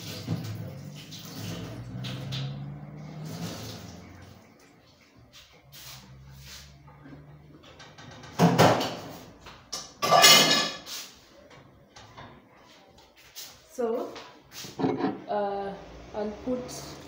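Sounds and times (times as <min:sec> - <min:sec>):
metal pot clattering: 0:07.8 - 0:10.9, 0:14.7 - 0:15.3
dishes knocking: 0:14.8 - 0:15.3.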